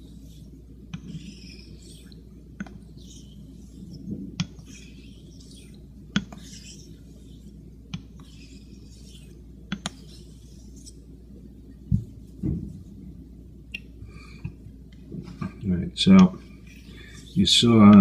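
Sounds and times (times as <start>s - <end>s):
razor scraping on whetstone: 0.2s - 2.2s, 2.9s - 11.0s.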